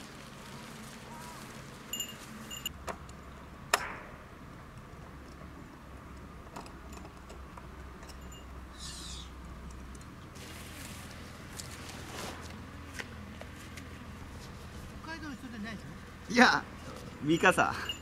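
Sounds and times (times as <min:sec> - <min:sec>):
camping gear clinking and knocking: 0:01.8 - 0:03.1, 0:06.4 - 0:08.6, 0:16.8 - 0:18.0.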